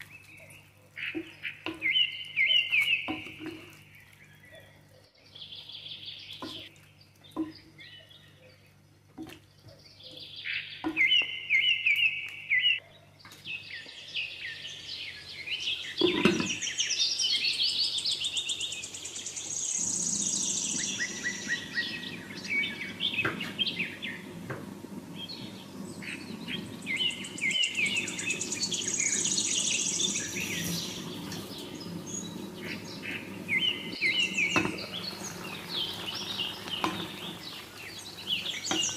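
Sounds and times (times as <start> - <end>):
stew simmering bubbling: 0.0 - 4.9, 20.6 - 38.9
small birds chirping and singing: 0.0 - 38.9.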